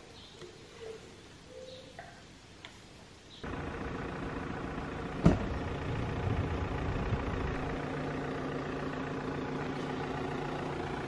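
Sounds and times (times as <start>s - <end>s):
vehicle engine idling: 3.4s - 11.0s.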